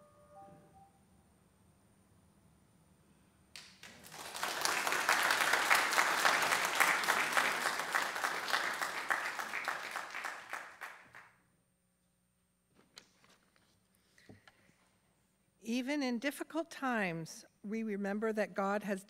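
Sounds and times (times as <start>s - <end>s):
congregation applauding: 3.6s - 11.4s.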